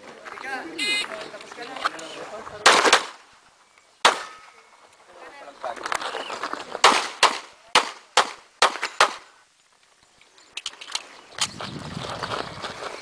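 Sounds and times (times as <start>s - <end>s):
pistol shots: 4.0s - 4.4s, 6.8s - 9.2s.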